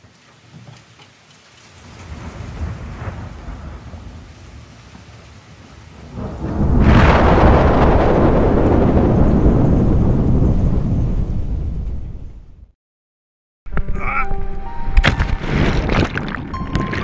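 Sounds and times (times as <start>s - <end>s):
thunder rumbling and cracking: 1.9s - 12.8s.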